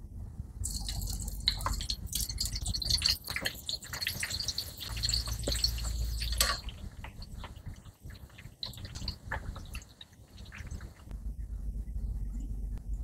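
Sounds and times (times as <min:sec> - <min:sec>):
steady low hum: 0:00.0 - 0:13.0
slices frying in hot oil: 0:00.7 - 0:11.1.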